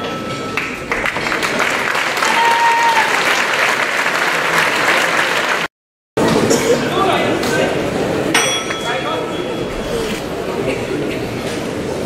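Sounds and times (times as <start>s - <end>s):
crowd applauding and cheering: 0.5s - 5.7s.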